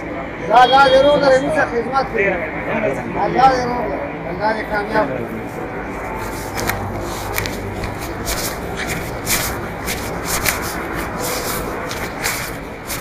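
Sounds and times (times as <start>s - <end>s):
rustling and scraping: 6.0s - 13.0s.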